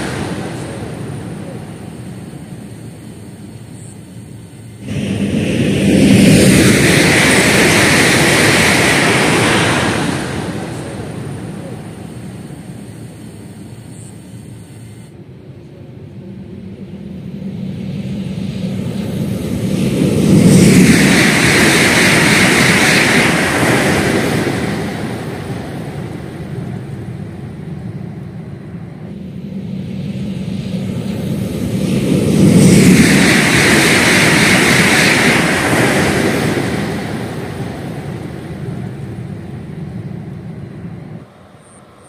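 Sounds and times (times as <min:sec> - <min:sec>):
high-speed train passing: 0:00.0 - 0:42.0.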